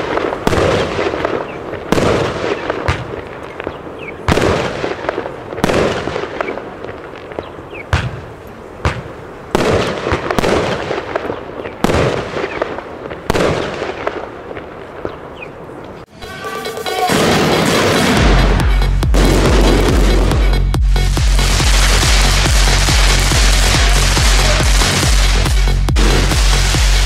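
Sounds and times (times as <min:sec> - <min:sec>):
firework shots: 0:00.0 - 0:16.0, 0:17.0 - 0:27.0
crackling hiss of bursting stars: 0:20.9 - 0:27.0.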